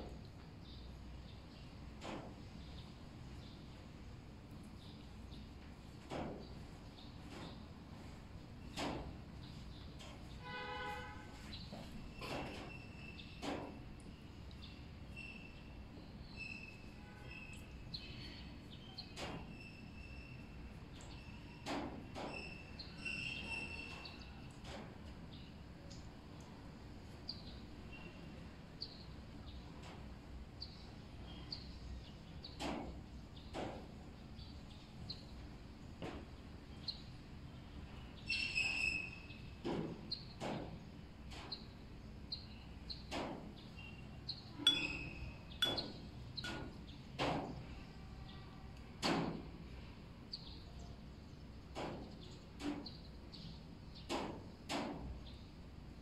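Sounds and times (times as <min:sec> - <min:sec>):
brush tapping on ceramic: 0:44.6 - 0:46.0.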